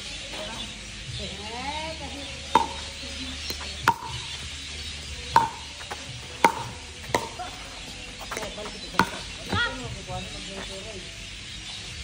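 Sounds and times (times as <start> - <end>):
paddles striking ball: 2.6 - 2.9, 3.8 - 4.3, 5.3 - 7.6, 8.2 - 9.7.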